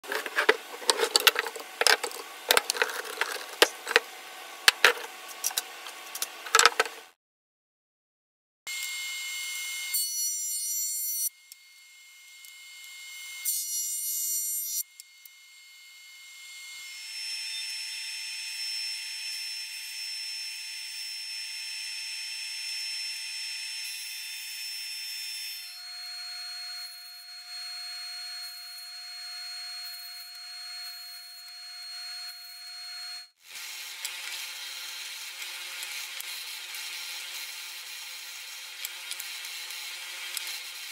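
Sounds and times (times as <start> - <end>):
belt sander sanding wood: 0.0 - 7.1
jointer cutting board: 0.0 - 7.1.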